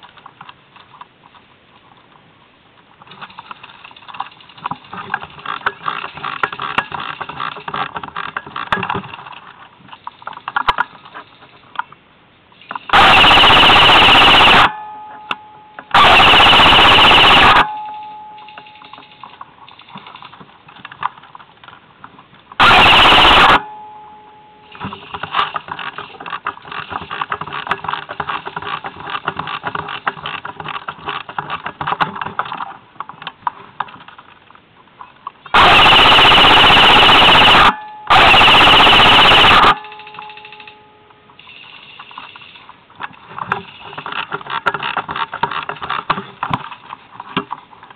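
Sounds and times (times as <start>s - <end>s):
airsoft gun full-auto bursts: 12.9s - 14.7s, 15.9s - 17.7s, 22.6s - 23.6s, 35.6s - 39.9s.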